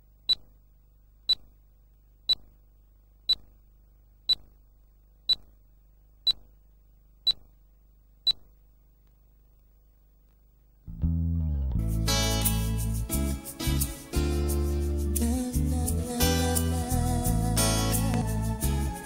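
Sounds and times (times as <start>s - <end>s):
faint low hum: 0.0s - 13.1s
sharp electronic ticks: 0.3s - 0.6s, 1.3s - 1.6s, 2.3s - 2.6s, 3.3s - 3.6s, 4.3s - 4.6s, 5.3s - 5.6s, 6.2s - 6.6s, 7.2s - 7.6s, 8.2s - 8.5s.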